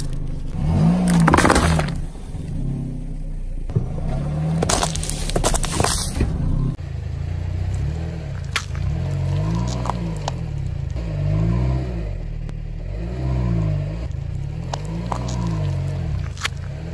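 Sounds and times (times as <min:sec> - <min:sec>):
low car drone: 0:00.0 - 0:16.9.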